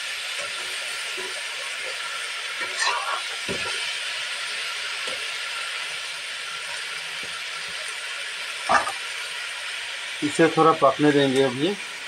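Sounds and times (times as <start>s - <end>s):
vegetables sizzling in hot oil: 0.0s - 12.0s
metal spatula scraping: 2.6s - 3.4s, 8.7s - 9.0s.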